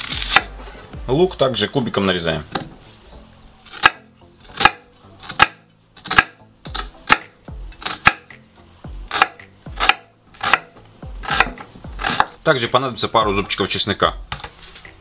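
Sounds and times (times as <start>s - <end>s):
knife chopping on wooden board: 3.7s - 8.4s, 9.0s - 12.4s.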